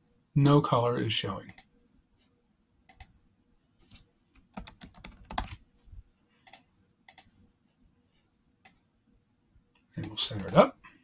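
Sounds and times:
laptop keyboard typing: 0:02.9 - 0:03.1, 0:04.5 - 0:05.6, 0:06.4 - 0:07.3, 0:10.0 - 0:10.6.

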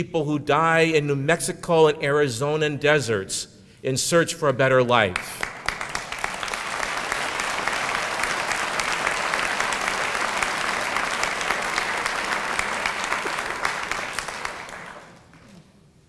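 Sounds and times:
audience applauding: 0:05.4 - 0:15.7.

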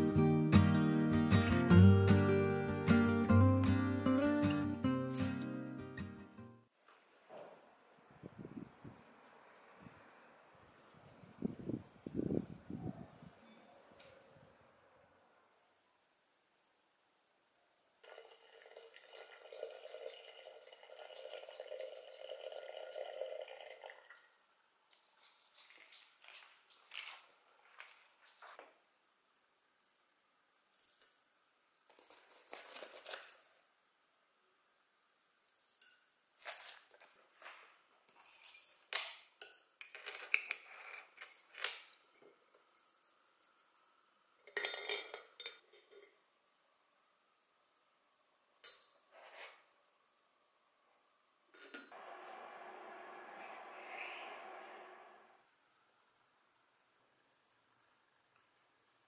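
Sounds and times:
water pouring into a teapot: 0:18.0 - 0:24.3.

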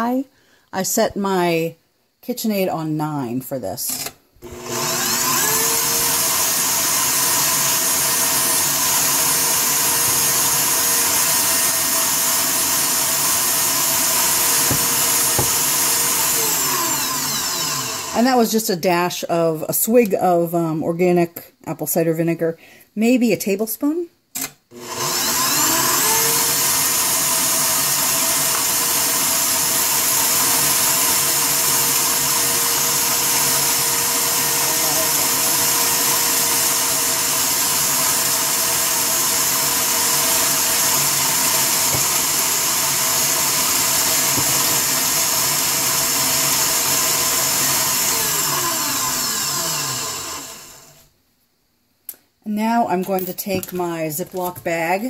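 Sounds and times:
stand mixer motor whine: 0:04.4 - 0:18.2, 0:24.8 - 0:51.0.

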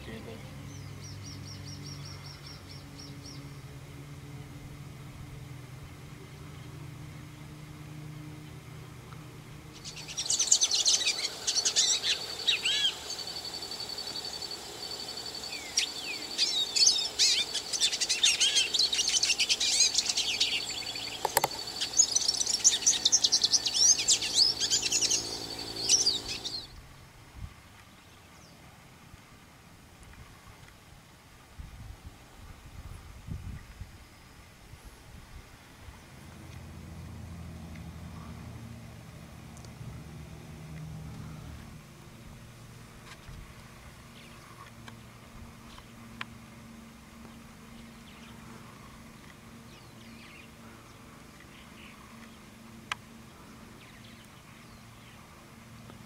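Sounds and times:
low steady hum: 0:00.0 - 0:56.0
birds chirping and calling: 0:09.8 - 0:26.7
sharp click: 0:21.2 - 0:21.6.

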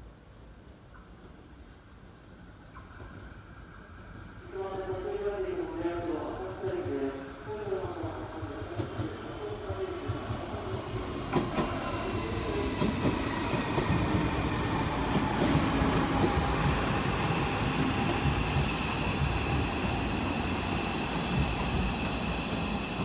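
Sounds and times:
train wheels rumbling on rails: 0:07.6 - 0:23.0.

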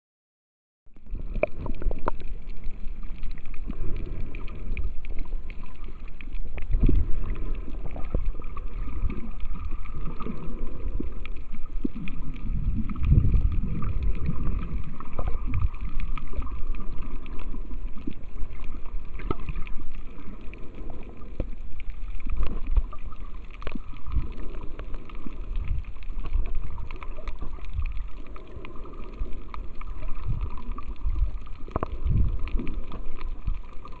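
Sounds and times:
faint steady hum: 0:00.9 - 0:34.0
underwater rumble of moving water: 0:00.9 - 0:34.0.

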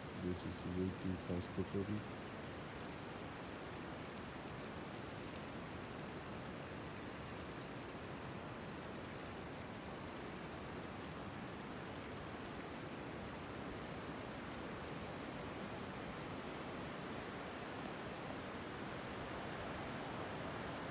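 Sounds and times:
mountain stream rushing: 0:00.0 - 0:20.9.

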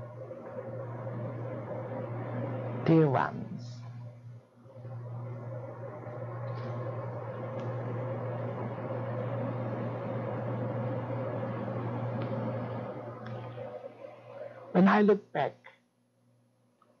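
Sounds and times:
machine hum and whirring: 0:00.0 - 0:17.0.

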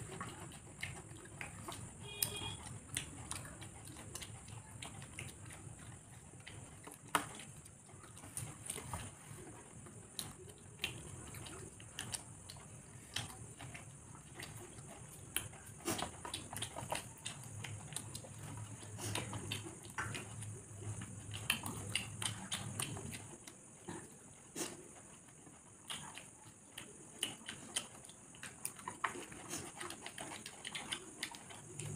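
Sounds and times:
wet chewing and mouth smacks: 0:00.0 - 0:31.9.

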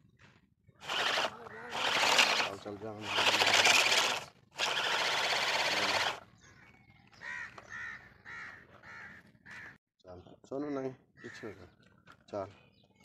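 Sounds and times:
toy wheels rolling over sand: 0:00.8 - 0:06.2
crow cawing: 0:01.3 - 0:01.9, 0:07.2 - 0:09.8, 0:11.2 - 0:11.7.

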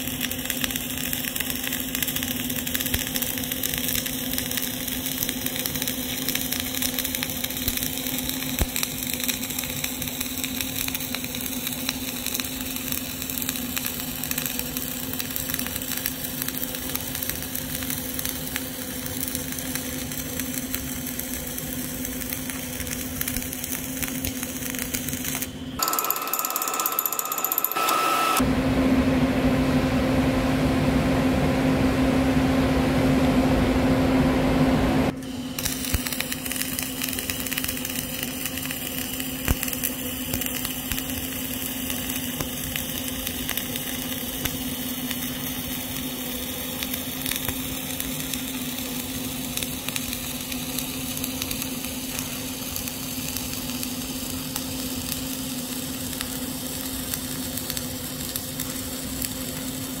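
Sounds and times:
welding arc crackling sizzle: 0:00.0 - 0:28.5, 0:35.0 - 1:00.0
low hum: 0:28.4 - 0:35.2.

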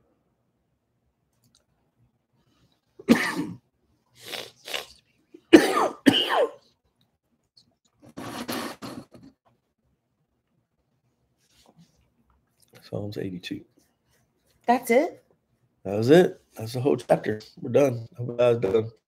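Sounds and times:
woman coughing: 0:03.0 - 0:03.6, 0:05.5 - 0:06.6.

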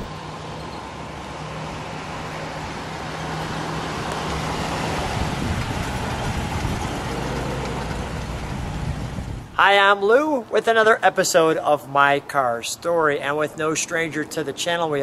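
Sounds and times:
car engine driving past: 0:00.0 - 0:09.5.

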